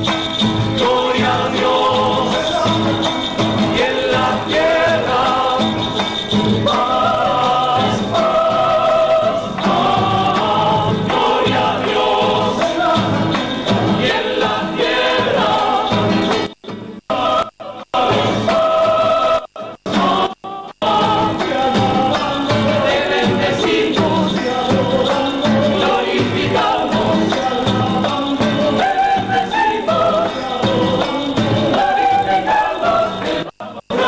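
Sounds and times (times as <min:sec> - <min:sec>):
acoustic guitar: 0:00.0 - 0:34.0
group singing a hymn: 0:00.0 - 0:34.0.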